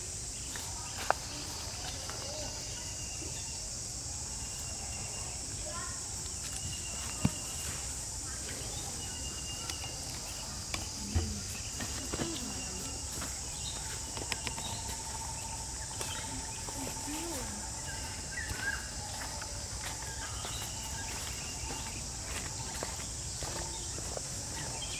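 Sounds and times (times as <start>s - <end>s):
faint chirps: 0.0s - 24.9s
high-pitched insect chorus: 0.0s - 24.9s.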